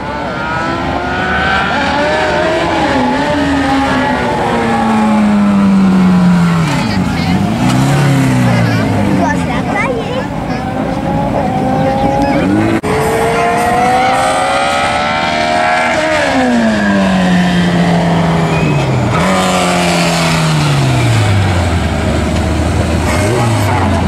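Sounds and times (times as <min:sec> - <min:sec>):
car engine revving: 0:00.0 - 0:24.0.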